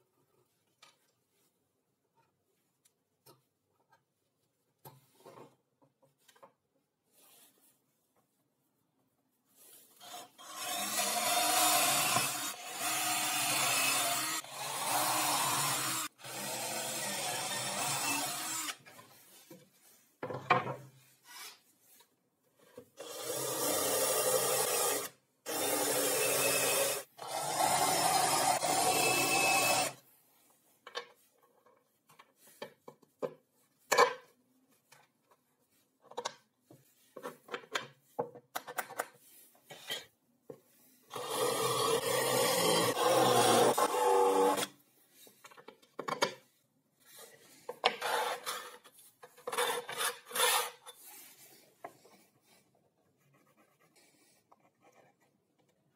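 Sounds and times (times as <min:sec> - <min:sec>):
power drill boring through plywood: 0:10.0 - 0:18.8, 0:23.0 - 0:30.0, 0:41.1 - 0:44.7.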